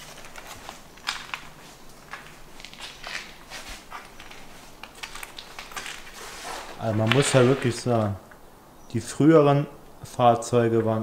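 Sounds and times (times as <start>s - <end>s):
footsteps crunching on grit: 0.0s - 8.0s.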